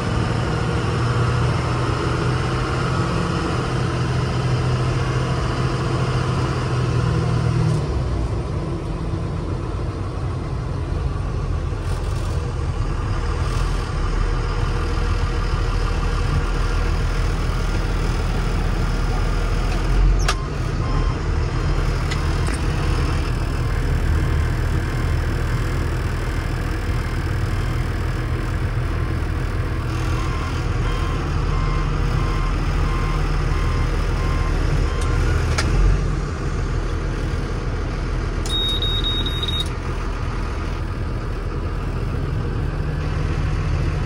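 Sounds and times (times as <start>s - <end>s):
truck engine humming: 0.0s - 44.0s
high beep: 38.5s - 39.7s.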